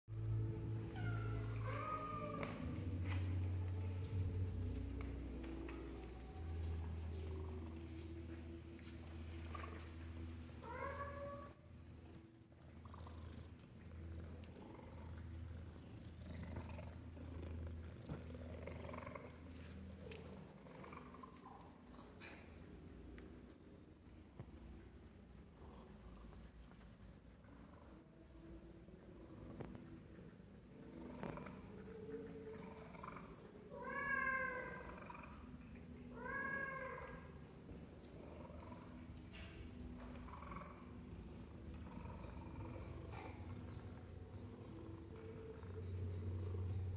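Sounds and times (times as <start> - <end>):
cat purring: 0.1 - 22.9, 24.2 - 46.9
cat meowing: 0.8 - 2.8, 33.7 - 35.2, 36.1 - 37.3.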